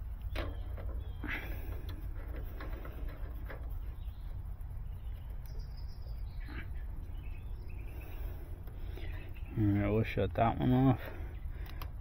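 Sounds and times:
steady low rumble: 0.0s - 12.0s
faint bird chirps: 3.8s - 10.0s.

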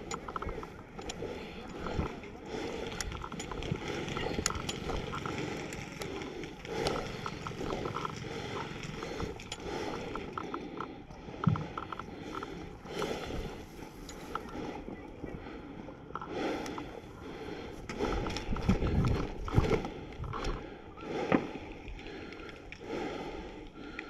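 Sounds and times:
kit clicking and rattling: 0.0s - 14.6s.

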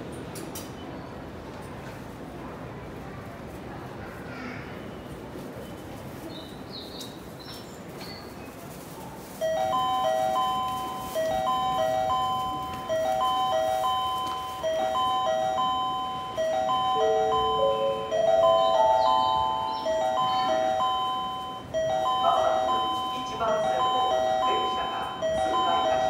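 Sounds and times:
bell-like electronic chime melody: 9.5s - 26.0s.

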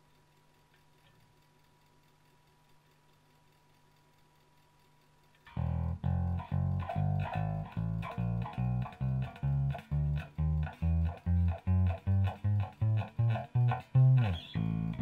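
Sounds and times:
electric bass plucked notes: 5.5s - 15.0s.

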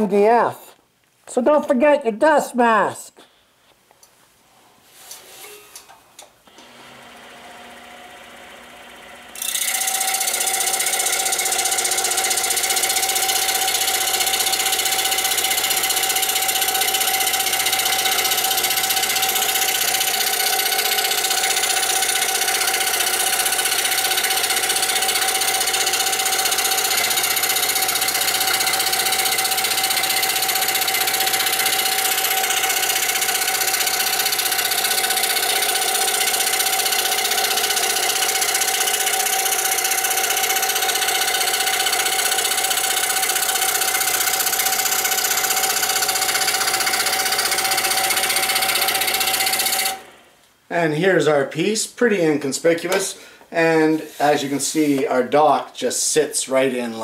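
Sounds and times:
scroll saw cutting: 6.5s - 50.2s, 53.7s - 55.0s.

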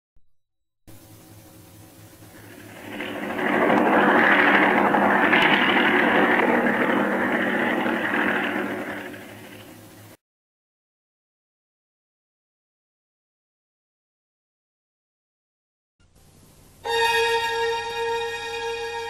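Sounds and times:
faint film soundtrack hum: 0.9s - 10.2s, 16.0s - 19.0s
propeller airplane engine droning: 0.9s - 10.2s.

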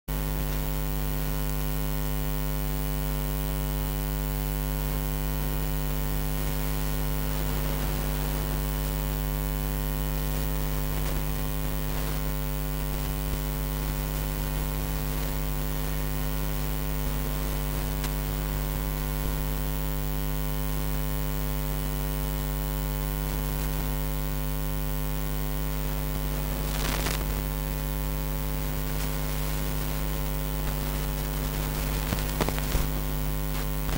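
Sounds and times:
electrical mains hum: 0.1s - 33.9s
static hiss: 0.1s - 33.9s
burst of noise: 4.9s - 18.5s, 25.8s - 27.6s, 28.4s - 33.9s.

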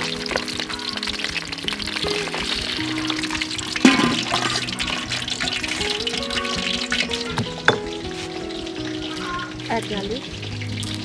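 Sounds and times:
background music: 0.0s - 11.0s
fish sizzling in hot oil: 0.0s - 11.0s.

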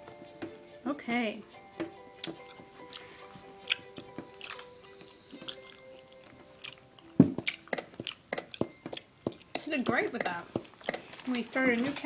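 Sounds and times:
soft background music: 0.0s - 12.0s.

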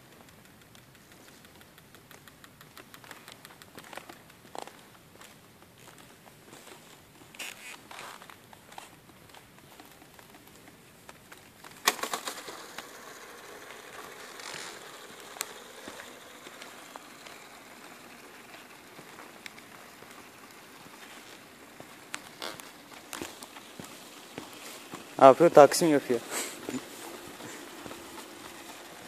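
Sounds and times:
model plane propeller whirring: 9.8s - 29.0s.

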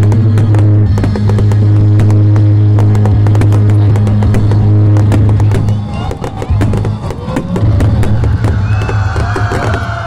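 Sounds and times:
crowd voices: 0.0s - 10.0s
fireworks crackling and popping: 0.0s - 10.0s
loud music with held bass: 0.0s - 10.0s.

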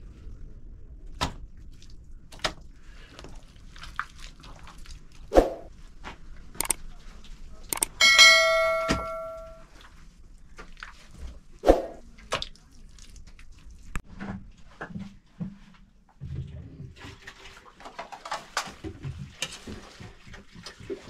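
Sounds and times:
bell-like chime: 8.0s - 9.6s.

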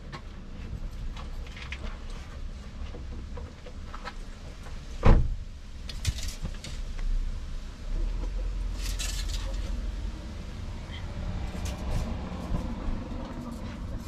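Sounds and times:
handling clicks and rustles: 0.0s - 4.8s, 5.8s - 7.1s, 8.2s - 9.9s
loud thump: 5.0s - 5.4s.

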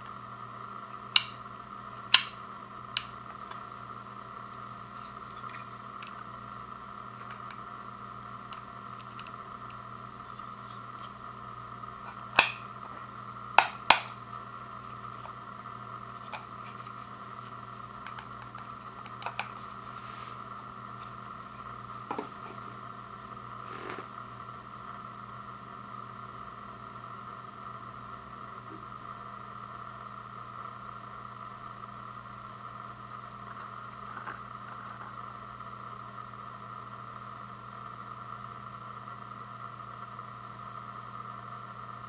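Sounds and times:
steady background hum: 0.0s - 42.0s
lighter ticks: 1.1s - 1.4s, 2.1s - 3.1s, 12.1s - 12.7s, 13.6s - 14.2s.

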